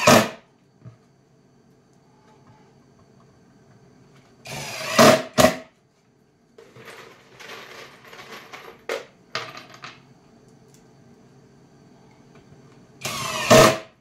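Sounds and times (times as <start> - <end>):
screws dropped on plywood: 6.6 - 10.0
cordless drill driving screw: 13.0 - 13.8.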